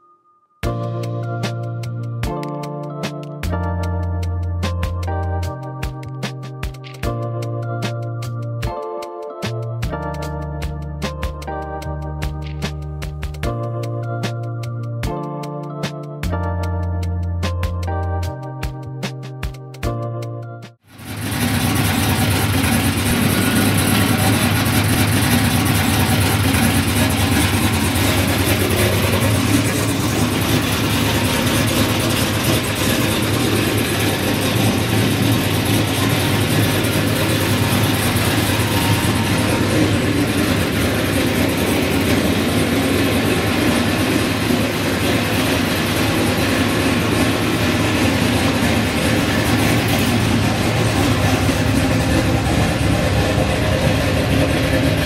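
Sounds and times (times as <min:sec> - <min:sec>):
car engine idling: 0:20.9 - 0:55.0.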